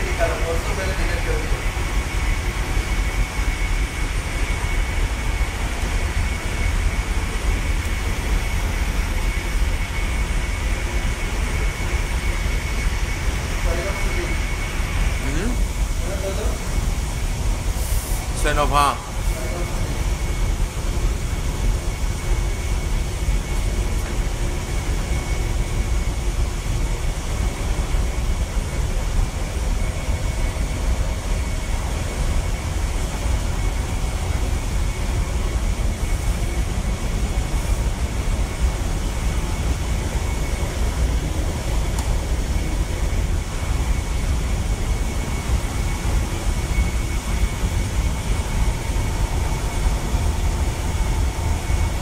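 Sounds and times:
engine room deep rumble: 0:00.0 - 0:52.0
faint steady whine: 0:00.0 - 0:52.0.

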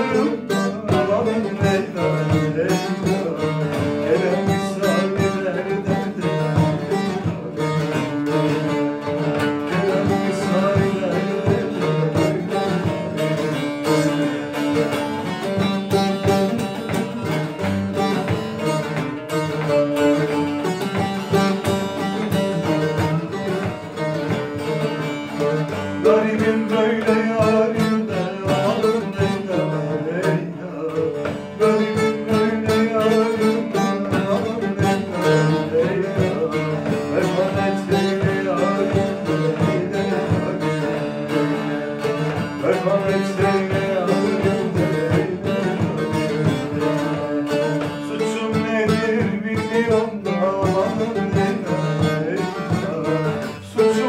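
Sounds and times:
long-necked lutes strummed rapidly: 0:00.0 - 0:54.0
man singing: 0:00.0 - 0:54.0.

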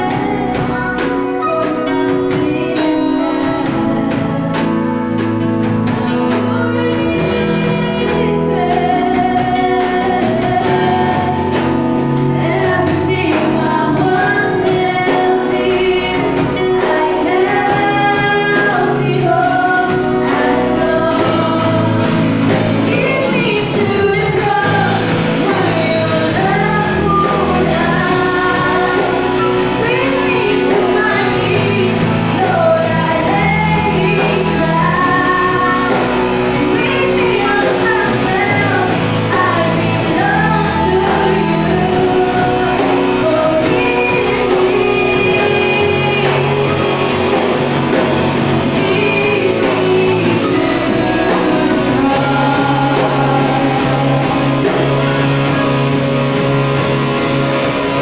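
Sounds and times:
live band playing: 0:00.0 - 0:58.0
women singing a worship song: 0:00.0 - 0:58.0.

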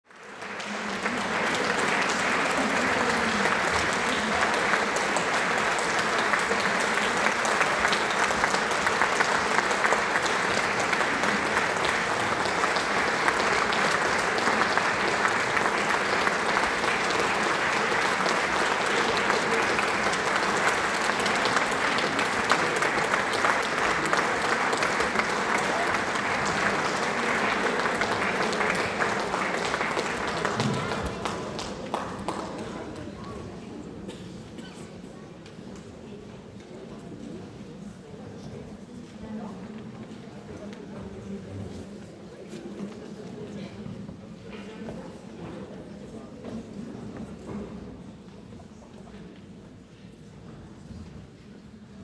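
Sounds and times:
audience applauding: 0:00.1 - 0:33.4.

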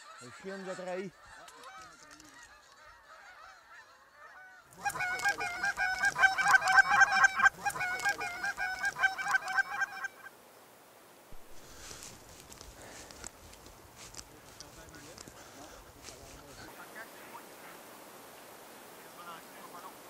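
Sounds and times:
geese honking: 0:00.0 - 0:10.3, 0:14.1 - 0:17.8.

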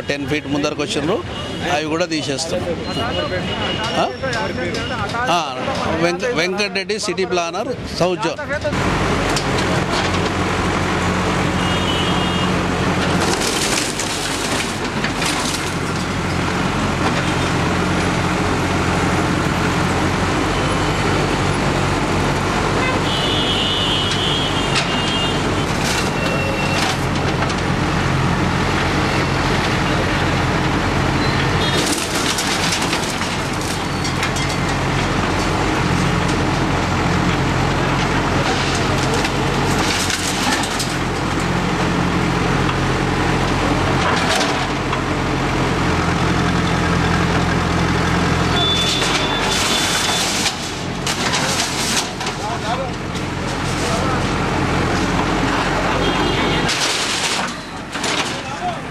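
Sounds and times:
diesel engine running: 0:04.0 - 0:58.9
breaking metal and debris crashes: 0:12.6 - 0:18.6, 0:24.1 - 0:27.7, 0:28.4 - 0:42.2, 0:48.4 - 0:58.9.

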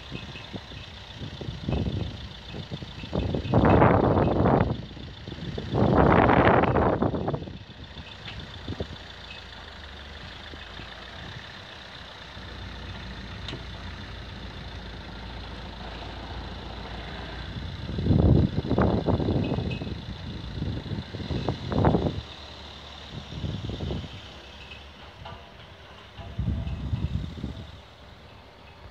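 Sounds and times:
car engine running at low revs: 0:00.0 - 0:28.9.

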